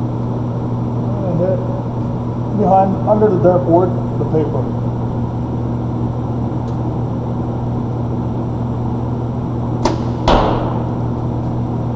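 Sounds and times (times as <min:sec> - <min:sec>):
ventilation hum: 0:00.0 - 0:11.9
bow shot thump: 0:09.8 - 0:11.0.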